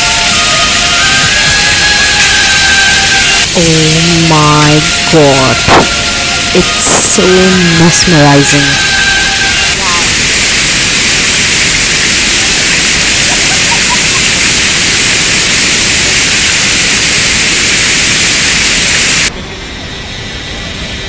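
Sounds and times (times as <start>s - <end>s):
waterfall roaring: 4.3s - 19.3s.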